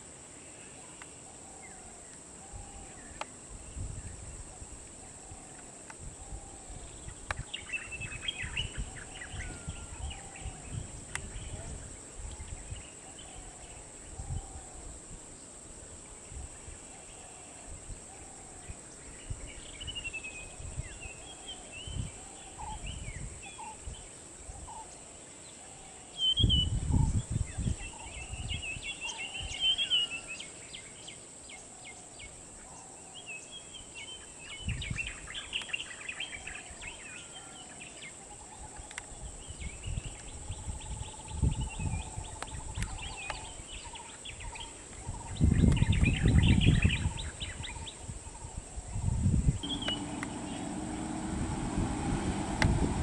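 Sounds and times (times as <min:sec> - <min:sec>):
birds chirping and trilling: 0:05.0 - 0:14.7, 0:16.1 - 0:53.0
low rumble: 0:49.6 - 0:53.0.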